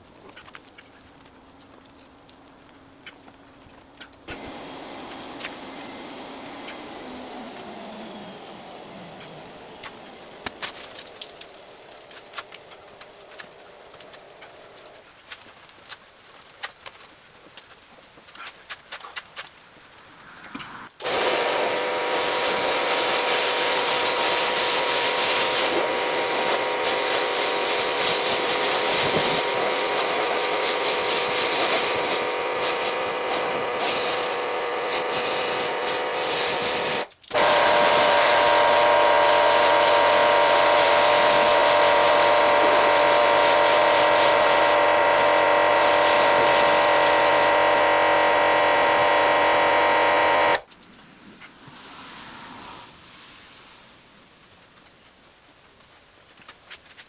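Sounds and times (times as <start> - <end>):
pressure washer spraying: 21.0 - 50.6.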